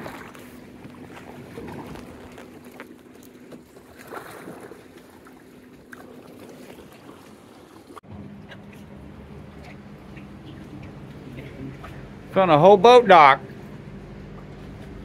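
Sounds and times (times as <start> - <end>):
light knocks and splashes: 0.0 - 12.4
water lapping around canoe: 0.0 - 15.0
steady low hum: 8.0 - 15.0.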